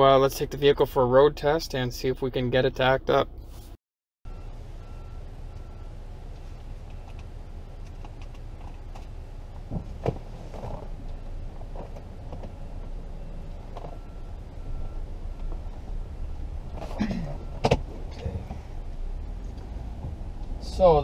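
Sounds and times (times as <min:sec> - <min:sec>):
car engine low rumble: 0:00.0 - 0:03.7, 0:04.3 - 0:21.0.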